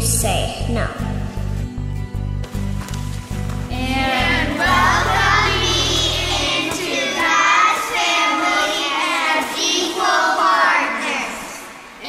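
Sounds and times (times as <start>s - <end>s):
music track: 0.7s - 8.9s
children singing: 3.7s - 12.0s.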